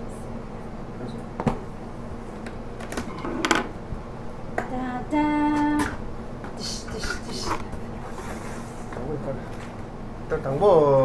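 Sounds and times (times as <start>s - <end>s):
held vocal tone: 6.6s - 7.6s.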